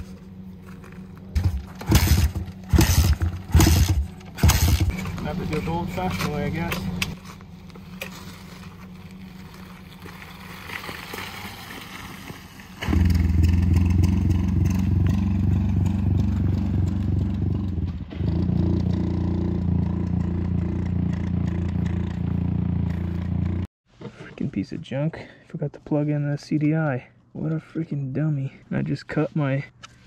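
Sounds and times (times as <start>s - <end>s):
pit bike engine running: 0.0s - 10.5s, 12.8s - 23.7s
faint engine sound: 0.0s - 11.5s, 12.4s - 23.7s.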